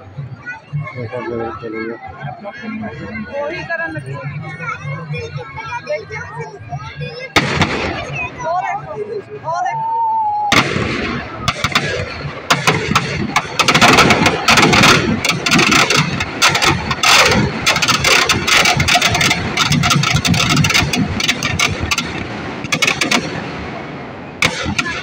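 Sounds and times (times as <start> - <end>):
firecrackers crackling: 7.4 - 9.2, 10.5 - 25.0.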